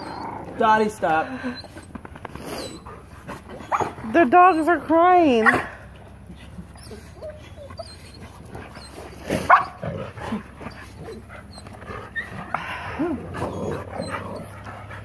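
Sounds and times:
dog yelping: 0.0 - 0.4, 1.4 - 10.0, 13.4 - 14.6
dogs whimpering and whining: 0.0 - 15.0.

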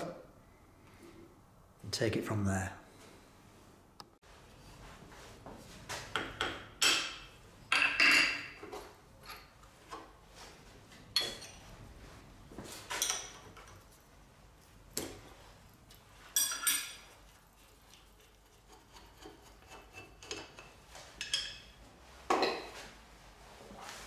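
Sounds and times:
metal parts and spanner clinking: 11.1 - 11.7, 15.8 - 17.1.

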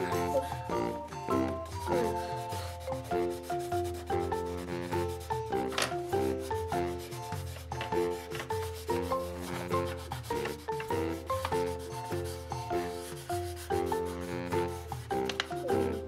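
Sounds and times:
background music: 0.0 - 16.0
crayon rubbing on paper: 0.0 - 16.0.

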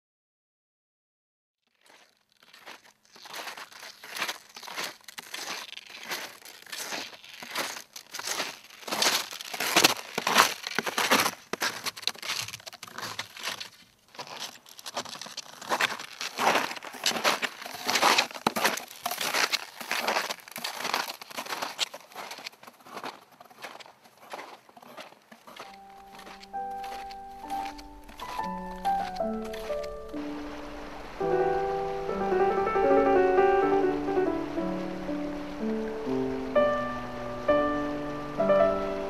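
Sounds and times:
snowshoes crunching through snow: 1.7 - 39.0.

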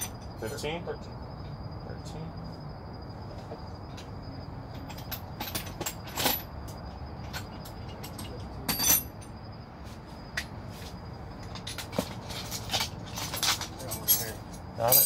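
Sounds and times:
hand tools clinking on metal: 7.2 - 9.4, 11.4 - 15.0.

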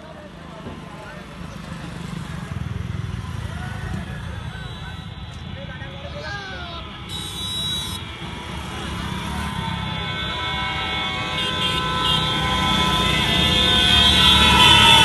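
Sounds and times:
motorcycle engines: 0.0 - 15.0.

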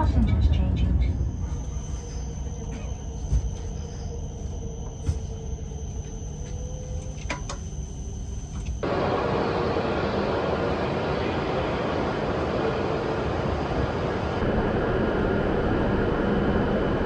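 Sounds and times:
high whine: 0.0 - 17.0
train rumble: 0.0 - 17.0.

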